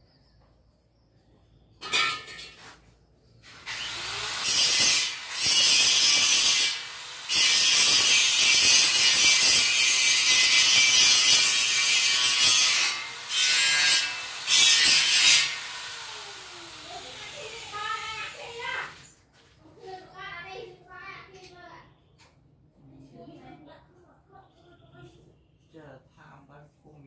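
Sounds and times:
power tool cutting wood: 0:03.5 - 0:18.9.

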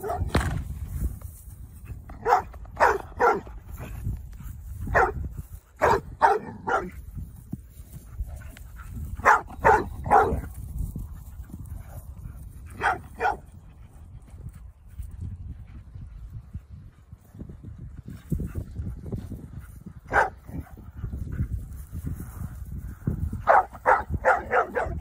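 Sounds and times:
dog barking: 0:00.0 - 0:00.3, 0:02.2 - 0:03.5, 0:04.9 - 0:05.2, 0:05.8 - 0:06.9, 0:09.2 - 0:10.4, 0:12.7 - 0:13.5, 0:20.1 - 0:20.7, 0:23.4 - 0:25.0.

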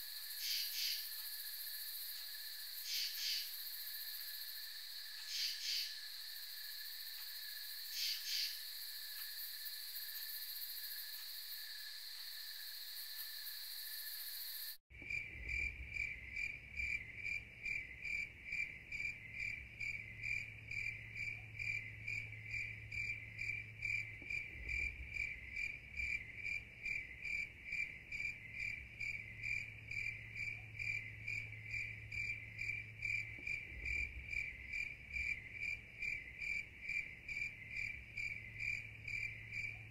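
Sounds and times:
high-pitched insect drone: 0:00.0 - 0:14.8
insects chirping: 0:00.0 - 0:39.9.

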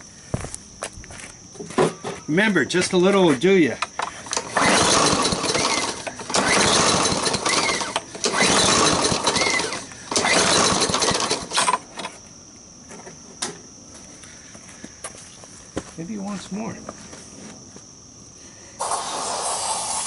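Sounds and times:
lawn mower engine firing briefly: 0:04.4 - 0:11.8.

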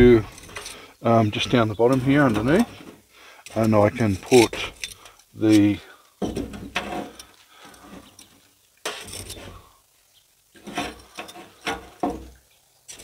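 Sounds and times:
steel tongs clinking and scraping: 0:03.4 - 0:05.7.

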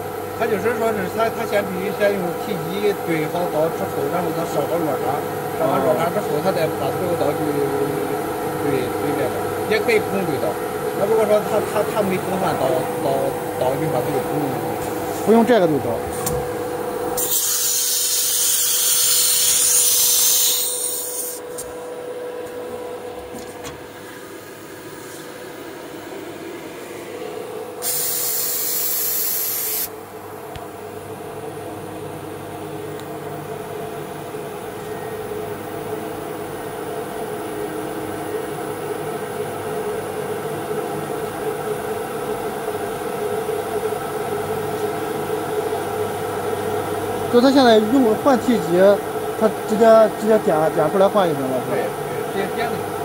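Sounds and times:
steady machine hum: 0:00.0 - 0:53.0
compressed air hissing: 0:27.8 - 0:29.9.

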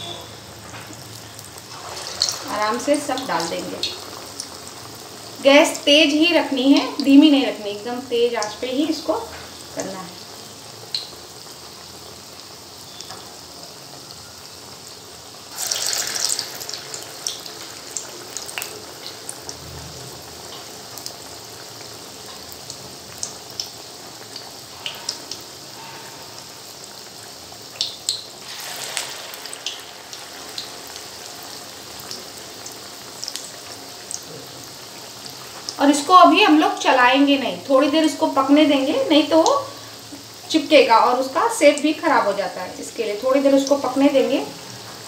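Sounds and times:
food deep-frying in oil: 0:00.0 - 0:45.0
oil crackles and pops: 0:10.9 - 0:11.3, 0:15.5 - 0:25.4, 0:27.7 - 0:35.8.

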